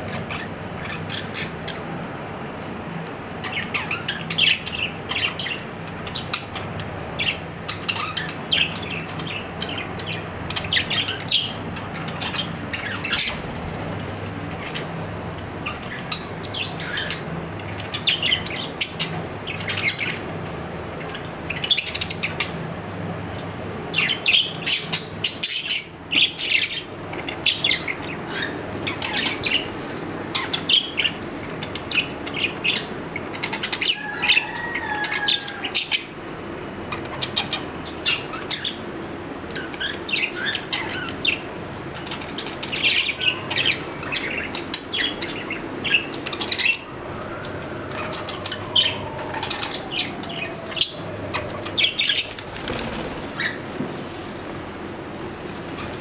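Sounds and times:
budgerigars chirping: 0.3 - 1.8, 7.2 - 13.6, 39.6 - 46.9, 48.0 - 53.6
wings fluttering: 12.6 - 15.0, 46.5 - 56.0.

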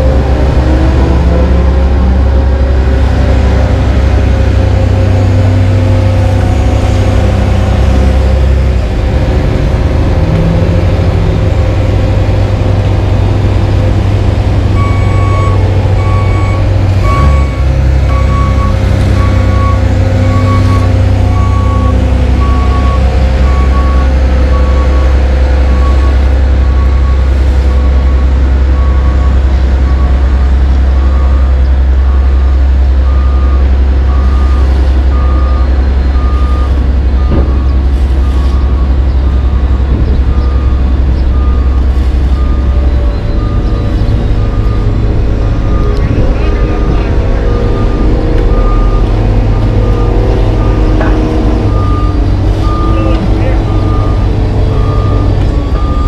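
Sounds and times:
diesel engines rumbling: 0.0 - 56.0
backup alarm beeping: 14.8 - 25.1, 33.1 - 56.0.

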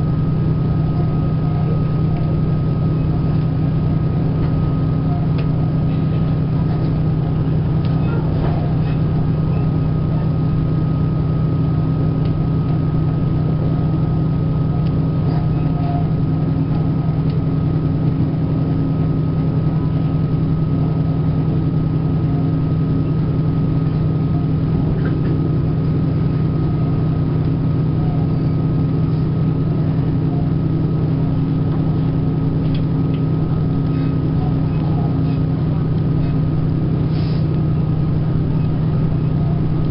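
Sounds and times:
thin steady whine: 0.0 - 39.9
vehicle engine drone: 0.0 - 39.9.

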